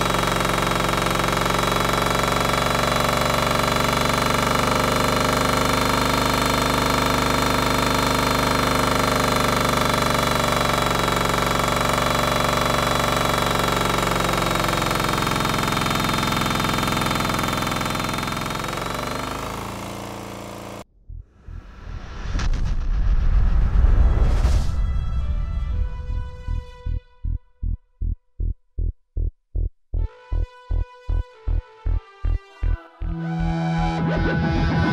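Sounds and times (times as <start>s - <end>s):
diesel engine running: 0.0s - 21.8s, 30.0s - 34.9s.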